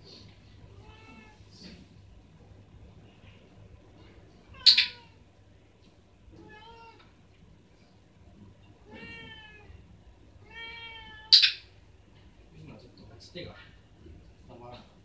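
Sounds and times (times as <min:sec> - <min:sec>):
cat meowing: 0:00.7 - 0:01.4, 0:04.5 - 0:05.2, 0:06.3 - 0:07.1, 0:08.8 - 0:09.8, 0:10.4 - 0:11.5.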